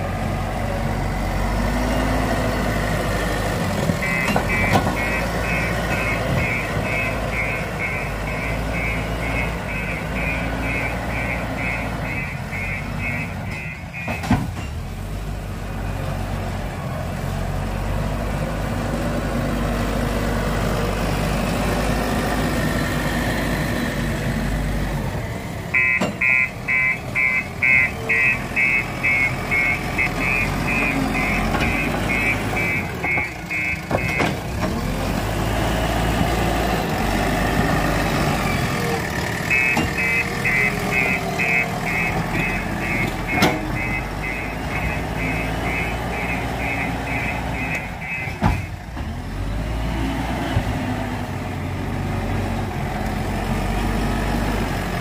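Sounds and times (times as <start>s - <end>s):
diesel engine running: 0.0s - 55.0s
reversing alarm beeping: 4.0s - 14.2s, 25.7s - 34.4s, 39.4s - 48.8s.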